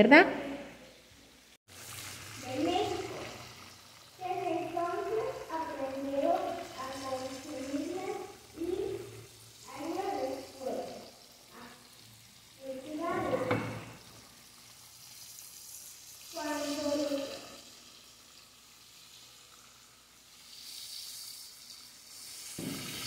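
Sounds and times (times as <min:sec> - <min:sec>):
fish sizzling in oil: 0:00.9 - 0:23.0.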